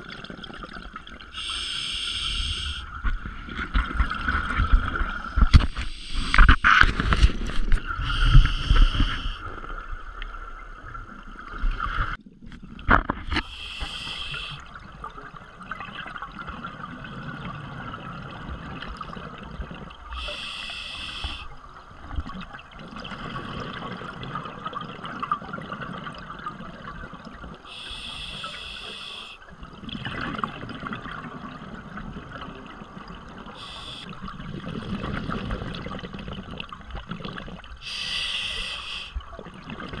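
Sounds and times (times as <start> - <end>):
regulator inhalation hiss: 1.4 - 2.8, 8.0 - 9.4, 13.4 - 14.6, 20.2 - 21.5, 27.7 - 29.4, 33.6 - 34.1, 37.8 - 39.2.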